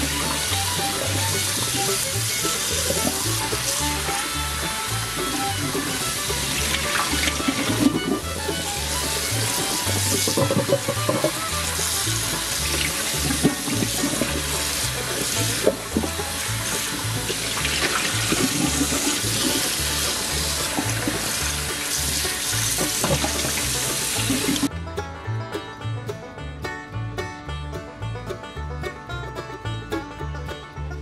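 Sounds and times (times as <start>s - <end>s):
tap water splashing into a bowl: 0.0s - 24.7s
background music with bass line: 0.0s - 31.0s.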